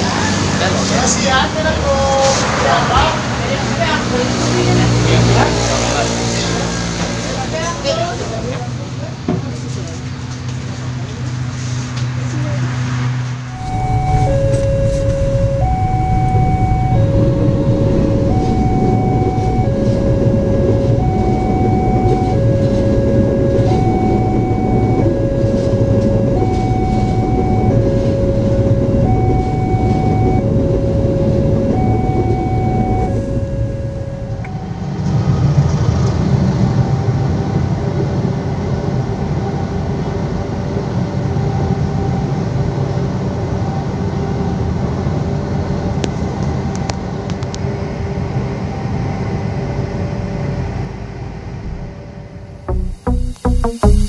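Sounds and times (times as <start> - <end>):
freight train rolling past: 0.0 - 44.0
passenger train rumbling past: 0.0 - 52.5
two-tone crossing alarm: 13.5 - 50.9.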